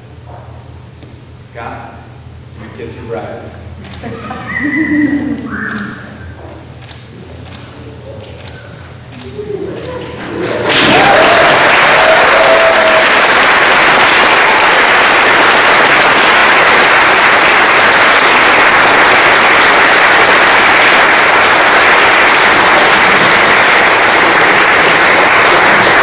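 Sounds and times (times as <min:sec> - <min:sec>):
guests applauding: 0:09.6 - 0:26.0.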